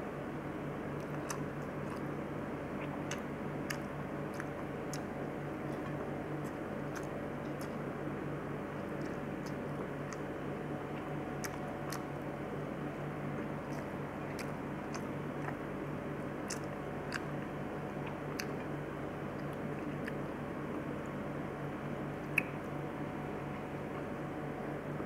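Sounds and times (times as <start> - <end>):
steady low hum: 0.0 - 25.0
chewing mouth sounds: 1.0 - 8.0, 8.6 - 12.4, 13.2 - 21.1, 22.2 - 22.7.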